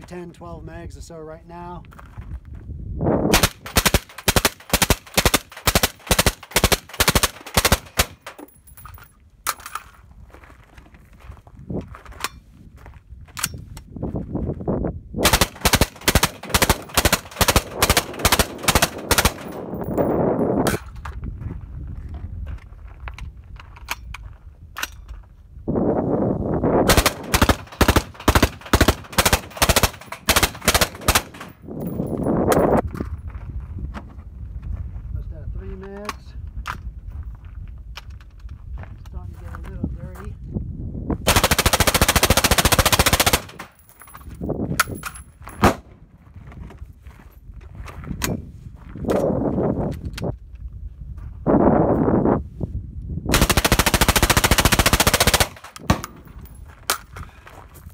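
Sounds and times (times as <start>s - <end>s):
suppressed rifle automatic fire: 3.3s - 8.3s, 15.2s - 19.7s, 26.9s - 31.6s, 41.3s - 43.7s, 53.3s - 56.3s.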